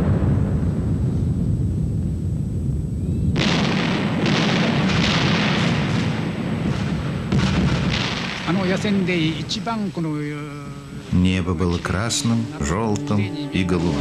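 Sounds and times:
deep rumbling: 0:00.0 - 0:14.0
loud gunfire blasts: 0:03.3 - 0:09.8.

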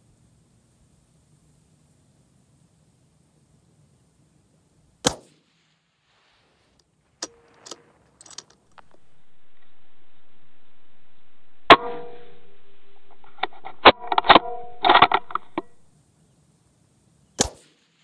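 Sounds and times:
rifle shot: 0:05.0 - 0:05.7, 0:17.4 - 0:18.0.

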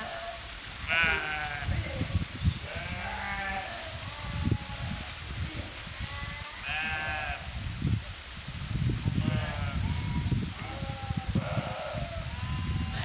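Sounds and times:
sheep and goats bleating: 0:00.0 - 0:02.0, 0:02.6 - 0:05.1, 0:05.9 - 0:07.6, 0:09.1 - 0:13.0.

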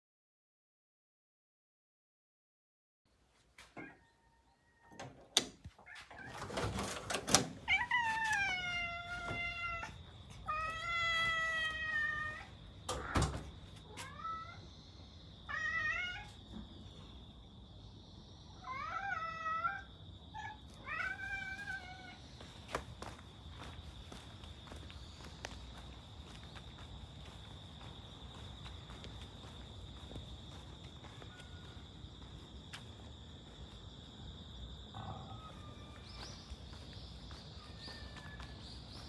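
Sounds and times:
door opening: 0:04.8 - 0:08.6, 0:12.9 - 0:13.6
cats meowing: 0:07.6 - 0:14.7, 0:15.5 - 0:16.4, 0:18.6 - 0:22.2.

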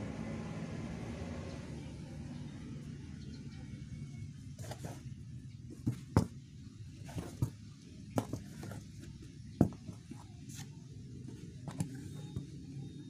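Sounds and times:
sneakers tapping on cardboard: 0:08.2 - 0:08.9.

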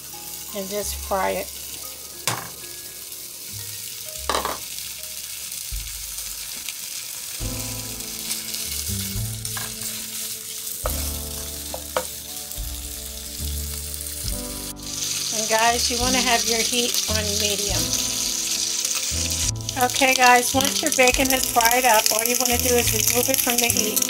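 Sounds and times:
bacon sizzling in a skillet: 0:00.0 - 0:24.0
knocks against a pan: 0:02.3 - 0:02.6, 0:04.3 - 0:04.6.

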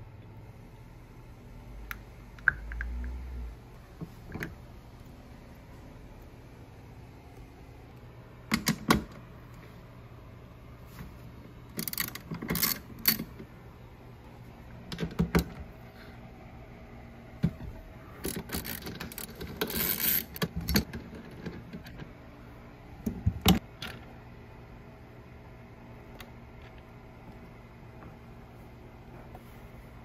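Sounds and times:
ratchet clicking: 0:11.8 - 0:13.2, 0:18.2 - 0:20.4.

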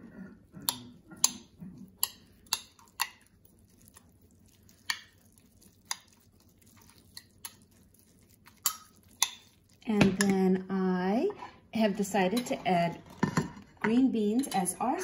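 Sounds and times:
metal utensil clinking glass bowl: 0:12.3 - 0:14.8.

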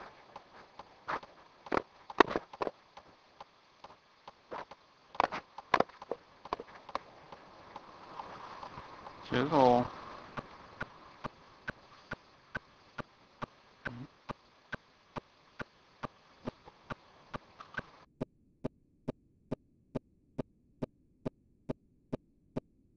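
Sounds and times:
faint hiss: 0:00.0 - 0:18.1
steady sharp clicks: 0:00.0 - 0:19.2.

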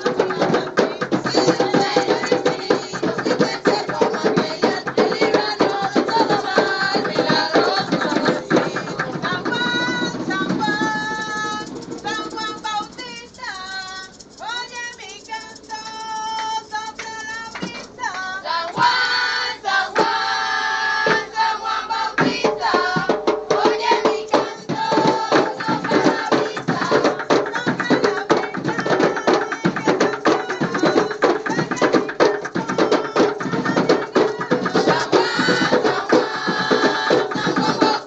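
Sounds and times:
hand drumming: 0:00.0 - 0:12.9, 0:22.2 - 0:38.0
women and girls singing together: 0:00.0 - 0:38.0.

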